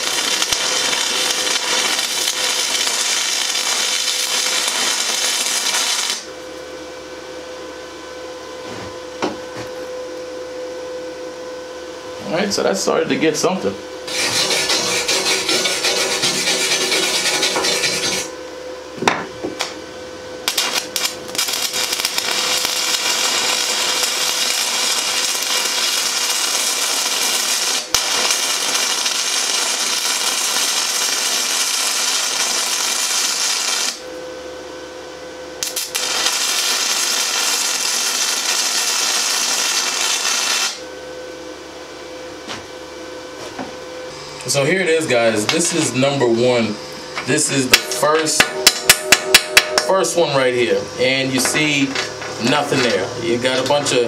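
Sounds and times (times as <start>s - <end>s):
welding arc crackling hiss: 0.0s - 6.3s, 14.1s - 18.4s, 20.4s - 34.2s, 35.6s - 40.9s, 47.3s - 54.0s
wire brush scrubbing steel: 14.1s - 18.3s.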